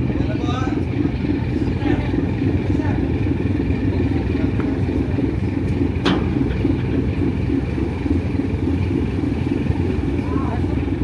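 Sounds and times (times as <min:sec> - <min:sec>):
ferry engines rumbling: 0:00.0 - 0:11.0.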